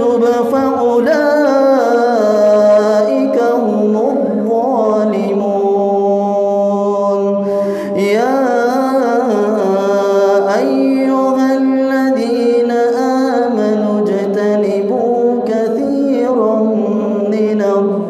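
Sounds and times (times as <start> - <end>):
man chanting recitation: 0.0 - 18.0
man breathing: 7.4 - 8.0.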